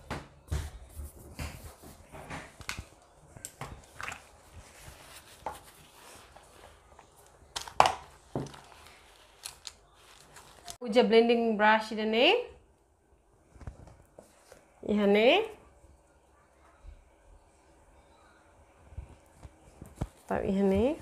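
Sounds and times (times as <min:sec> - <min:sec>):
brushes rummaged in a pouch: 0:03.8 - 0:10.8.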